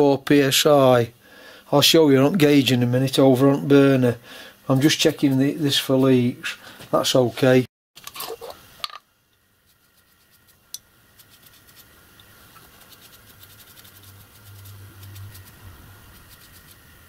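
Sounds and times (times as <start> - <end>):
brush scratching on brass: 9.6 - 16.9.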